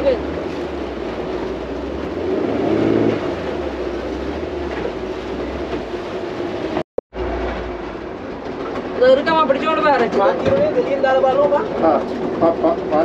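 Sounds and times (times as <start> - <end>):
motorboat engine running: 0.0 - 9.2
water noise: 0.0 - 13.0
wind: 0.0 - 13.0.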